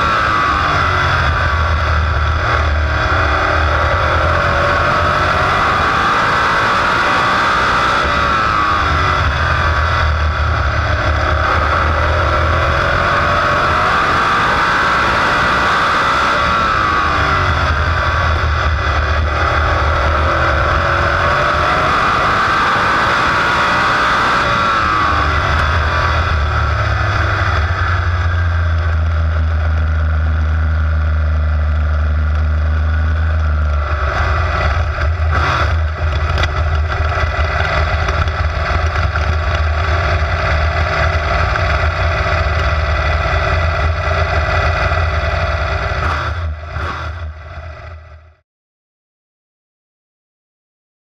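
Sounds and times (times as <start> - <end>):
race car engine: 0.0 - 48.4.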